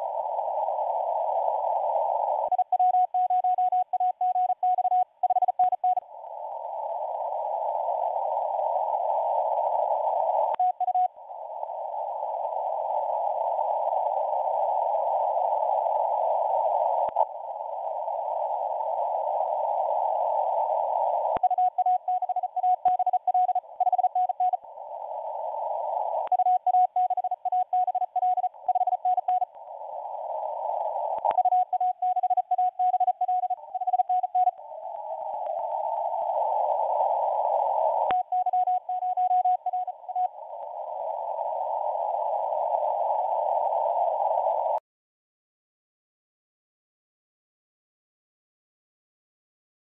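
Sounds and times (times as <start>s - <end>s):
radio receiver hiss: 0.0s - 44.8s
morse code keyed tone: 2.5s - 6.0s, 21.4s - 24.6s, 26.3s - 29.5s, 31.3s - 34.6s, 38.1s - 40.3s.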